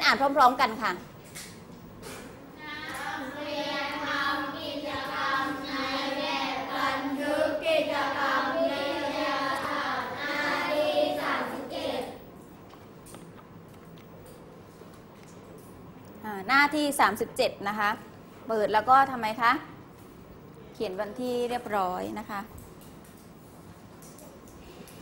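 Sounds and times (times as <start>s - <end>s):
children reading aloud in unison: 2.6s - 12.3s.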